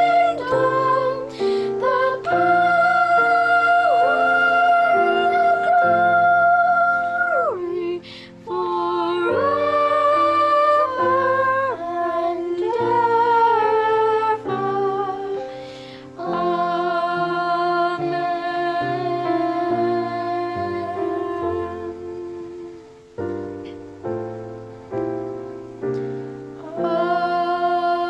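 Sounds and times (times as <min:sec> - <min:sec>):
voices singing long notes: 0:00.0 - 0:28.0.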